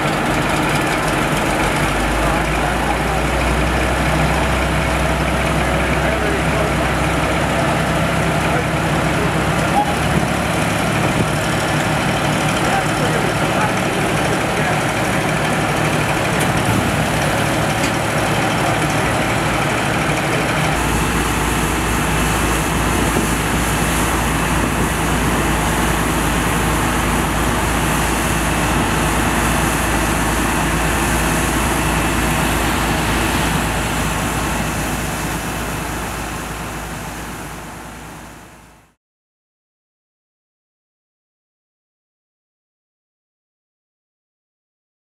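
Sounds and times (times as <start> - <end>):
fire engine pump drone: 0.0 - 39.0
water spraying: 20.8 - 37.7.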